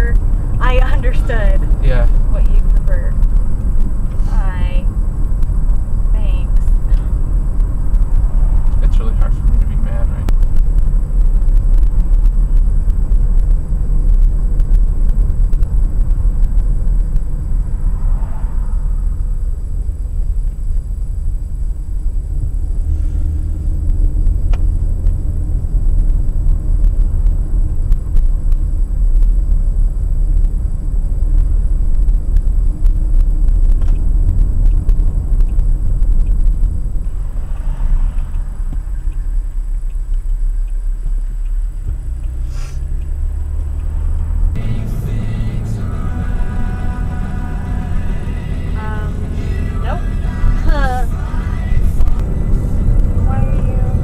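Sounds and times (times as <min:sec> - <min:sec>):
car interior engine and tyre rumble: 0:00.0 - 0:54.0.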